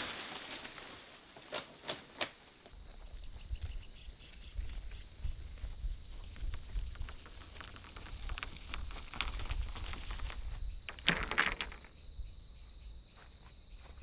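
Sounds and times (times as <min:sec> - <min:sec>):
high insect drone: 0:00.0 - 0:14.0
footsteps on grass: 0:02.6 - 0:10.8, 0:12.6 - 0:14.0
dry poles rattling: 0:06.7 - 0:11.9
poles dropped clattering: 0:10.9 - 0:11.9.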